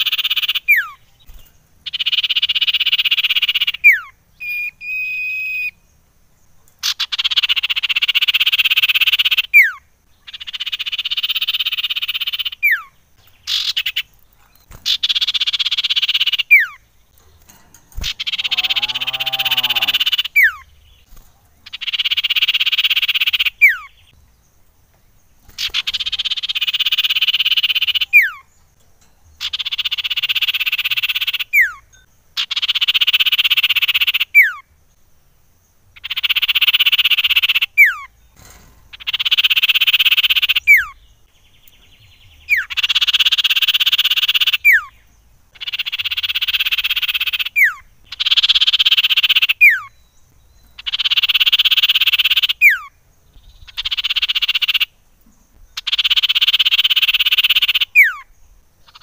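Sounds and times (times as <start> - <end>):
buzzy rattling bird trill: 0.0 - 5.8, 6.7 - 34.7, 35.8 - 59.0
falling bird whistle: 3.8 - 5.8.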